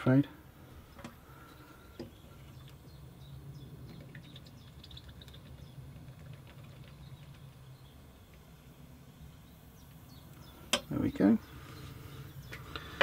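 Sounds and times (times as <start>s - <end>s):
small chirps: 0.9s - 8.5s.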